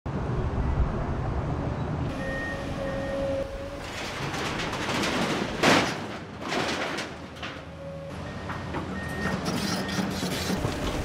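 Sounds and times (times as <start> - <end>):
sheet metal and wood crashing: 3.7 - 7.7.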